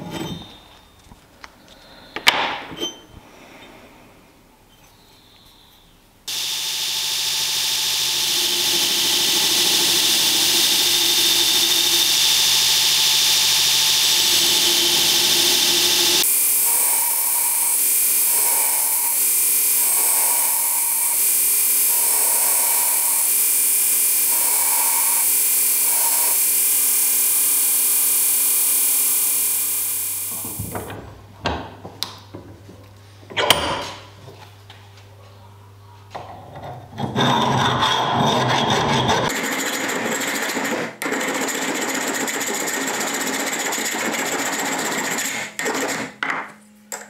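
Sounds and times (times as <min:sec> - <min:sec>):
belt grinder grinding metal: 0:06.3 - 0:30.7.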